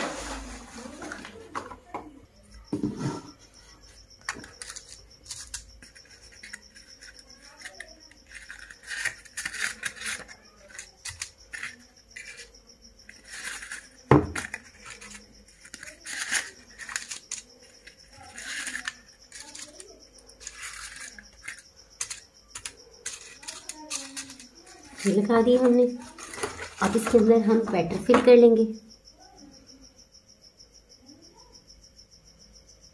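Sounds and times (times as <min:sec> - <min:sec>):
paper liners crinkling: 0:00.0 - 0:01.6, 0:04.2 - 0:12.5, 0:13.1 - 0:28.1.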